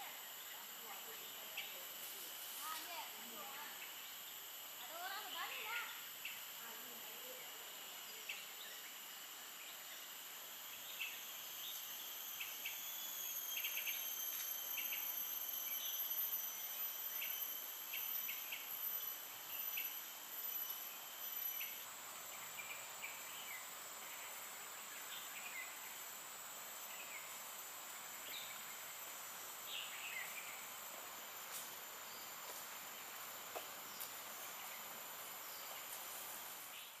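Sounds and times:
insects trilling: 0:00.0 - 0:37.0
bird chirps: 0:10.7 - 0:26.0, 0:29.6 - 0:30.8.

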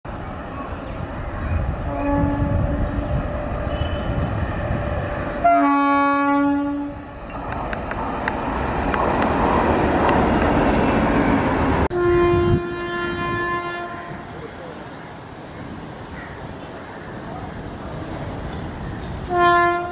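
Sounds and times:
train rushing past: 0:00.1 - 0:19.9
train horn blast: 0:01.8 - 0:04.3, 0:05.4 - 0:07.0, 0:11.9 - 0:14.3, 0:19.3 - 0:19.9
rail clicks: 0:07.2 - 0:11.9, 0:14.3 - 0:19.9.

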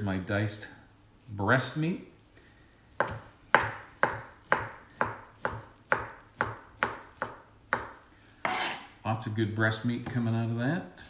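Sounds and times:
knife chopping on cutting board: 0:03.0 - 0:08.9.

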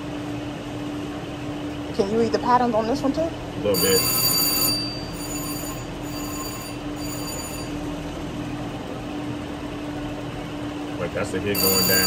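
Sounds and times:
steady electronic hum: 0:00.0 - 0:12.0
slot machine chimes: 0:03.7 - 0:07.9, 0:11.5 - 0:12.0.

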